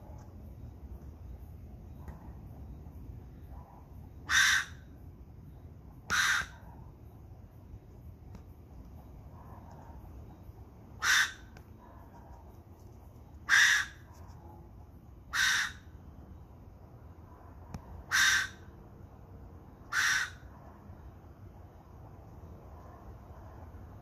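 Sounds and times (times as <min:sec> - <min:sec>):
ringtail cat harsh calls: 0:04.2 - 0:04.8, 0:06.1 - 0:06.6, 0:11.0 - 0:11.5, 0:13.5 - 0:14.1, 0:15.3 - 0:15.8, 0:18.1 - 0:18.6, 0:19.9 - 0:20.5.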